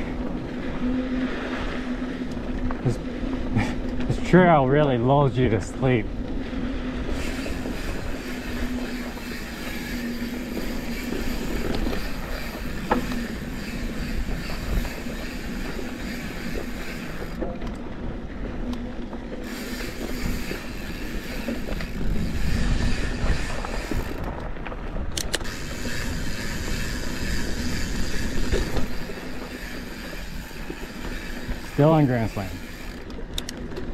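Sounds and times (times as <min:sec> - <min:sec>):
bike tyres on dirt: 0:00.0 - 0:33.9
bike mechanical rattle: 0:06.5 - 0:17.9, 0:18.7 - 0:33.9
sharp clicks: 0:25.1 - 0:25.5.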